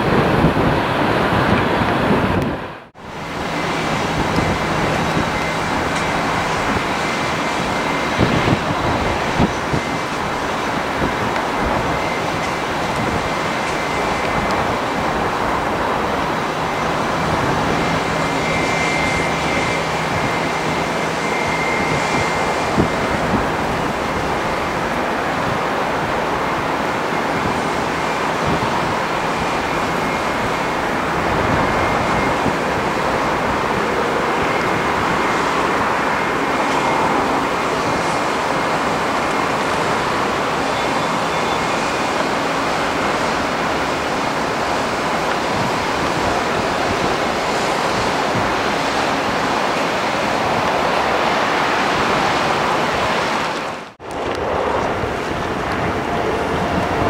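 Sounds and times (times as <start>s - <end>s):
jet engines running: 0.0s - 57.0s.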